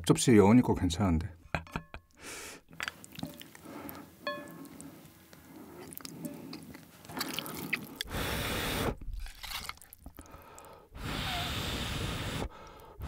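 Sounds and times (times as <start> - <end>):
noodles slurped: 2.9 - 13.0.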